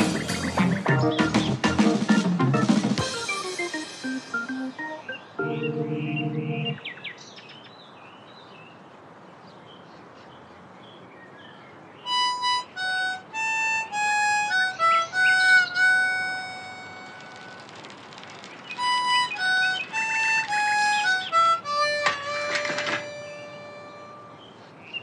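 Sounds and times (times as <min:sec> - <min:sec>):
low musical chord: 0:03.0 - 0:06.8, 0:21.9 - 0:24.4
solo melody of held notes: 0:03.0 - 0:06.8, 0:12.1 - 0:17.6, 0:18.8 - 0:24.4.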